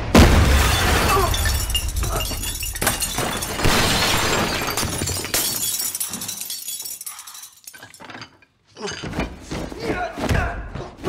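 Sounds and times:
glass bottles shattering: 0:00.3 - 0:09.1
tinkling glass: 0:01.0 - 0:08.9.

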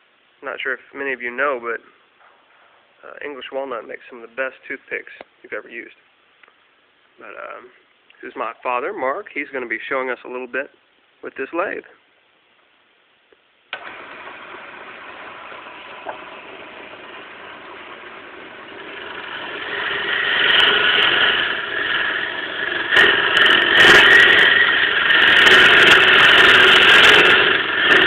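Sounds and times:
turning tool cutting wood: 0:13.7 - 0:28.0
wood lathe running: 0:13.7 - 0:28.0.

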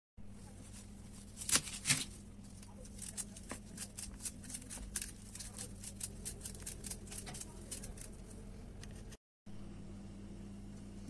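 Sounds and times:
knife scraping vegetable skin: 0:01.2 - 0:08.2.

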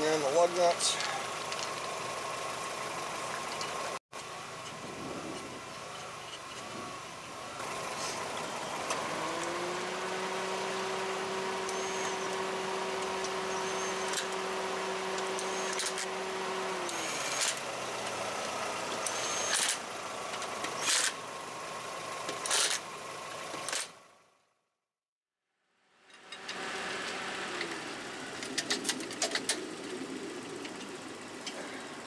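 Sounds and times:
lug nuts clicking and knocking: 0:28.4 - 0:29.7.

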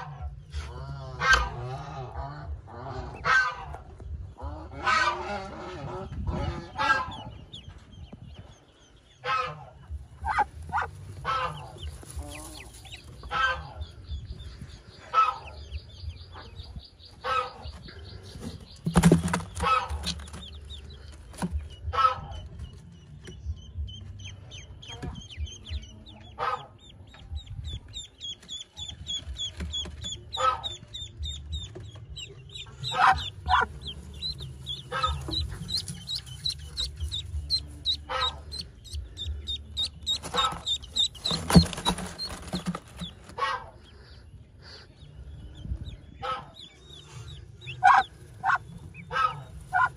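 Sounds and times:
ducklings peeping: 0:00.0 - 0:49.9
lower clucking calls: 0:24.6 - 0:43.8.

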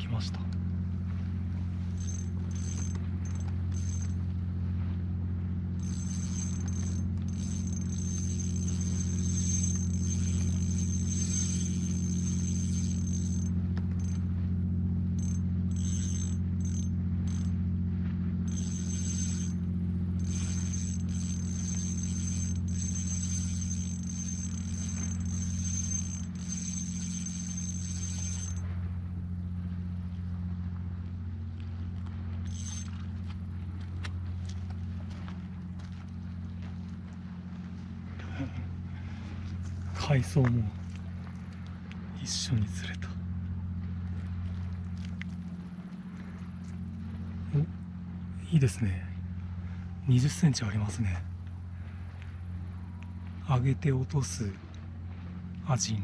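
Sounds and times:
steady low hum: 0:00.0 - 0:56.0
fishing reel whirring: 0:01.5 - 0:04.4, 0:05.8 - 0:14.4, 0:15.0 - 0:17.6, 0:18.4 - 0:30.3, 0:32.2 - 0:36.1.

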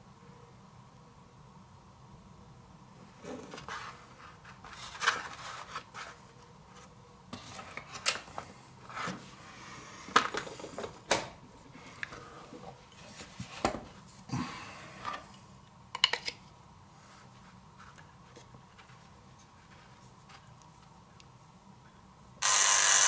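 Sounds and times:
rubbing and rustling: 0:03.0 - 0:08.0, 0:12.5 - 0:14.3, 0:16.9 - 0:20.9.

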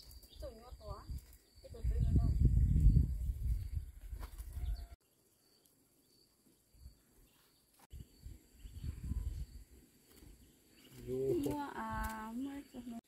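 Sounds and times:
faint high insect whine: 0:04.6 - 0:12.9.

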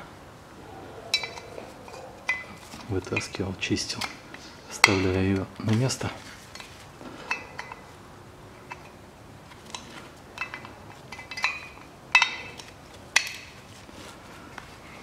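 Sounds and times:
metal parts clicking and clinking: 0:01.1 - 0:04.2, 0:06.5 - 0:07.9, 0:08.6 - 0:13.6.

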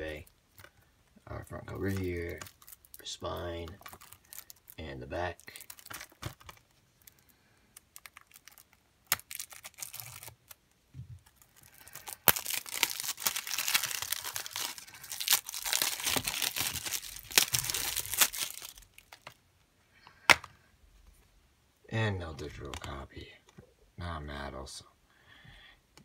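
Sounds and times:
plastic wrap tearing: 0:01.7 - 0:04.8, 0:05.4 - 0:06.6, 0:07.8 - 0:10.6, 0:11.2 - 0:19.3.

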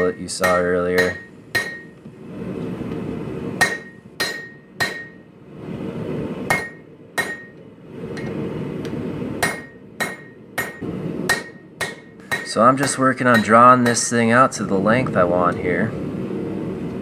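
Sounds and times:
hammer striking metal on anvil: 0:00.0 - 0:02.0, 0:03.6 - 0:05.3, 0:06.5 - 0:08.4, 0:09.4 - 0:14.3
gas forge burner rush: 0:00.0 - 0:17.0.

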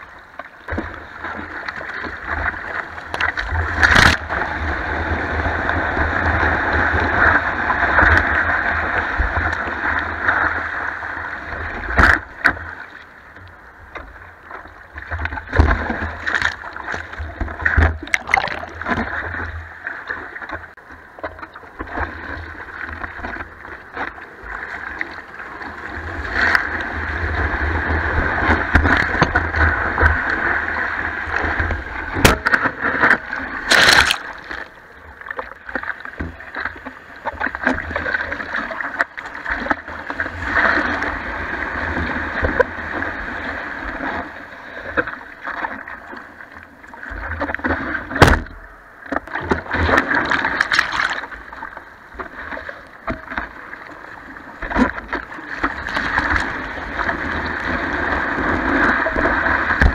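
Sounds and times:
surf whitewater rushing: 0:00.0 - 0:13.2, 0:14.9 - 0:46.4, 0:47.0 - 0:59.9
water slapping on camera: 0:01.6 - 0:04.5, 0:15.2 - 0:19.3, 0:31.3 - 0:41.2, 0:47.4 - 0:53.6, 0:54.6 - 0:59.9.

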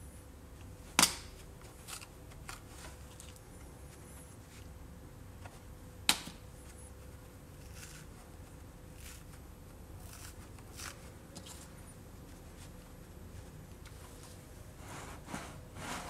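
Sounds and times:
fingers rustling foam: 0:06.6 - 0:15.2.

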